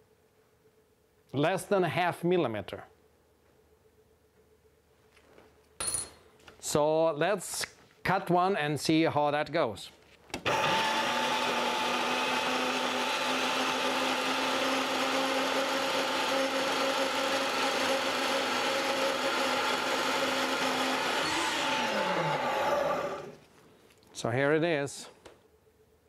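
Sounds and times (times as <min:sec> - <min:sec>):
band saw motor whine: 0:10.5 - 0:23.4.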